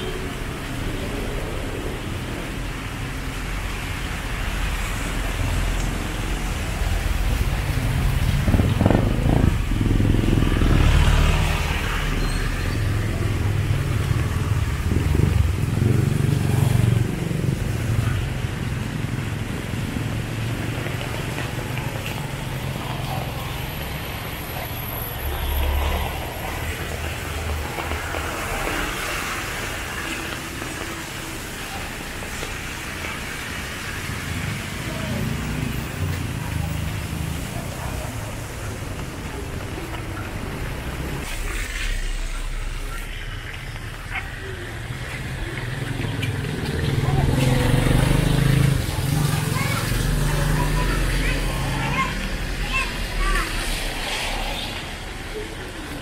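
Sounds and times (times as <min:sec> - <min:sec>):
motorcycles passing: 0:00.0 - 0:56.0
rain and wet tyres hiss: 0:00.0 - 0:56.0
truck engine rumbling past: 0:34.3 - 0:56.0.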